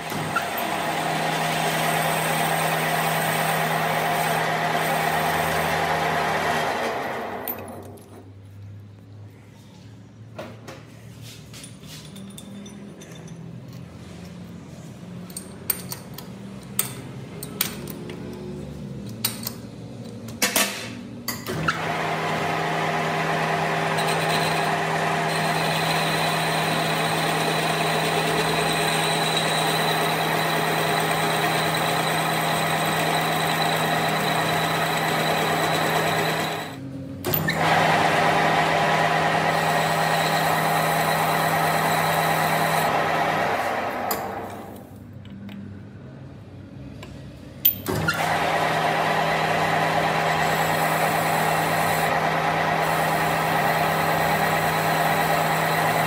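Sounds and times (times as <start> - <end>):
electric workshop machine running: 0.0 - 7.8, 21.5 - 44.9, 47.9 - 56.0.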